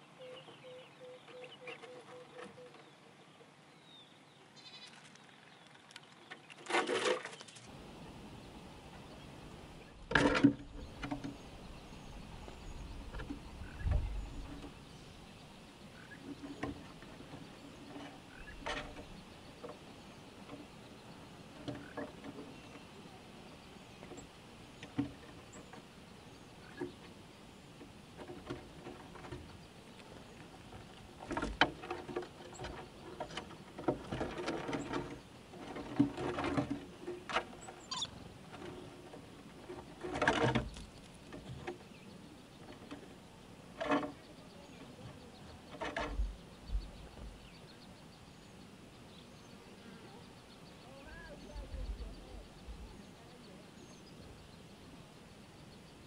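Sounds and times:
scrabbling on wood: 27.8 - 41.9
squirrels crunching and gnawing: 28.2 - 41.8.

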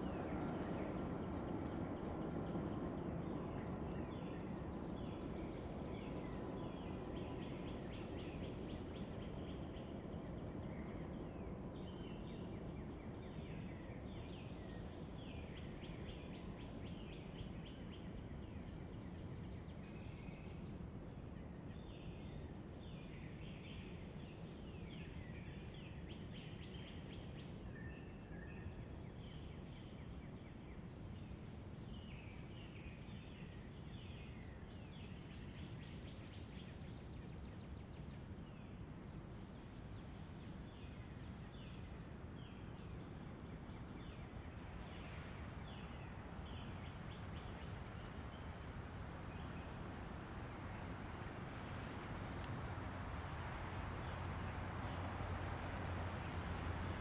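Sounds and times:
low background rumble: 0.0 - 25.4, 36.2 - 57.0
small birds chirping: 0.0 - 57.0.

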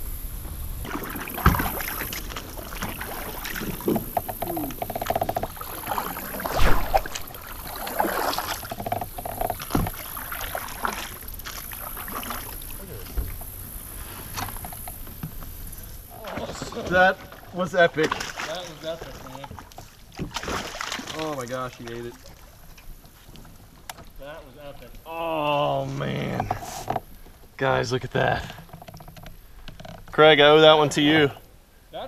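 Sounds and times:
paddle splashing in water: 0.8 - 13.5, 16.1 - 23.3.

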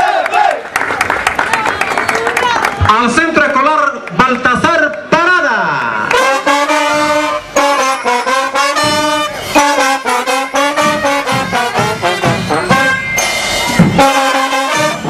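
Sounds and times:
brass band playing: 6.1 - 15.0.

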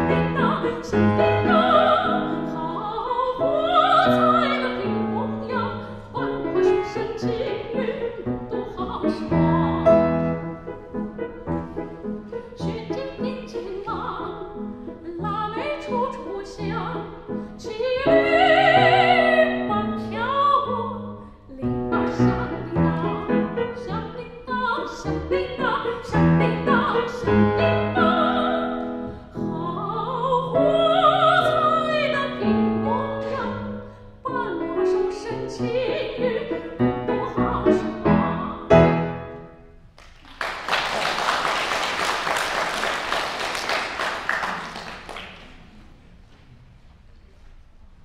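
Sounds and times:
soprano singing operatically: 0.0 - 10.1, 12.4 - 38.7
grand piano accompaniment: 0.0 - 46.1.

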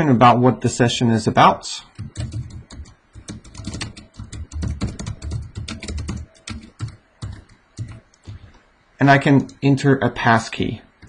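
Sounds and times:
typing on computer keyboard: 1.9 - 8.4.

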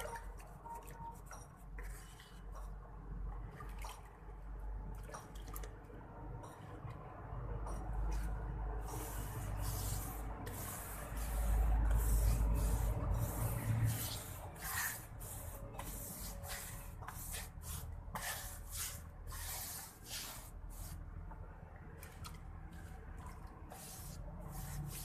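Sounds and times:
paintbrush bristles swishing on plaster: 0.0 - 2.7, 7.6 - 21.4, 22.0 - 25.0.

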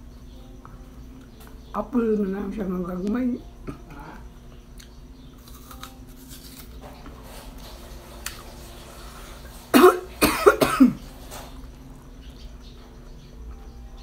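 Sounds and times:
faint chewing: 4.7 - 6.8
woman coughing: 9.7 - 11.0.

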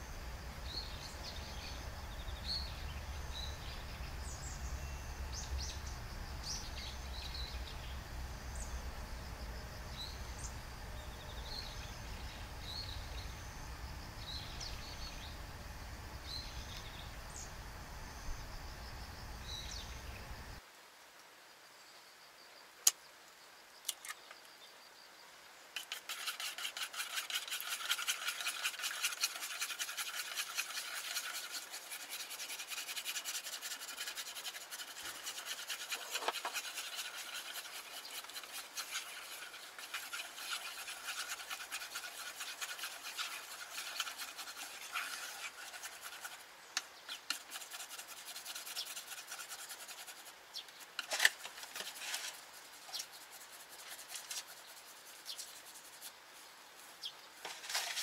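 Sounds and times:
chopsticks scraping a frying pan: 25.8 - 46.4, 47.2 - 50.2.

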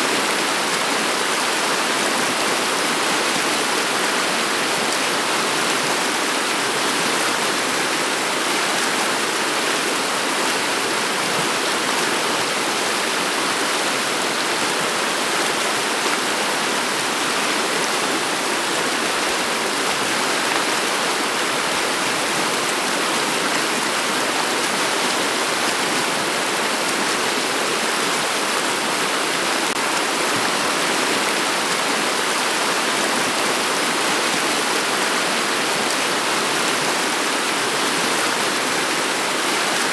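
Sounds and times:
river water flowing over pebbles: 0.0 - 39.9.

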